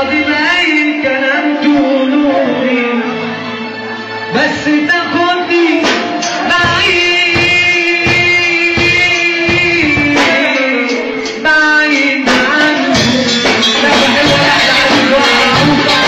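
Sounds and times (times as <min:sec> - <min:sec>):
man singing into a microphone: 0:00.0 - 0:03.6, 0:04.3 - 0:16.0
live band with drums: 0:04.3 - 0:16.0.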